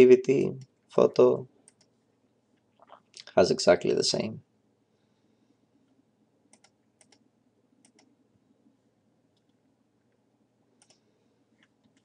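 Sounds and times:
computer mouse clicks: 1.6 - 2.0, 5.9 - 8.1, 10.8 - 11.0.

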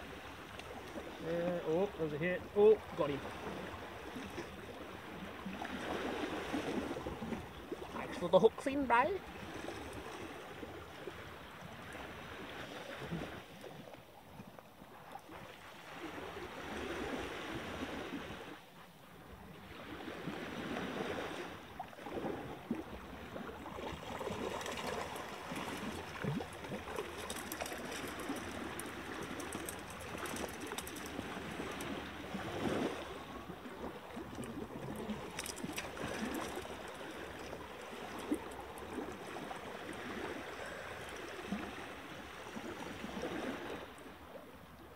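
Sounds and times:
small waves lapping on rocks: 0.0 - 44.9
crackly splashes: 19.7 - 44.9.

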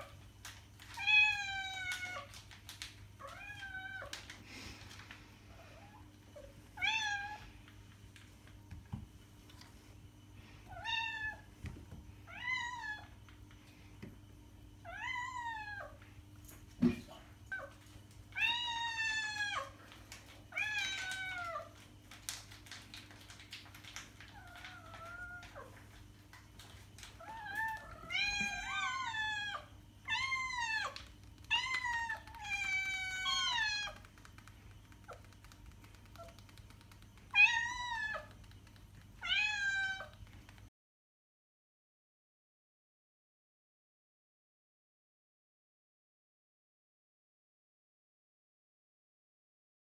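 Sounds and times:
cat meowing: 39.2 - 40.2.

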